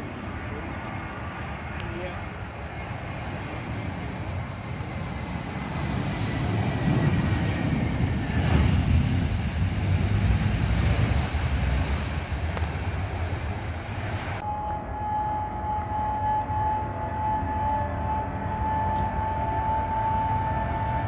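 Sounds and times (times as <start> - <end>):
jet engines rumbling: 0.0 - 21.0
steady pitched tone: 14.4 - 21.0.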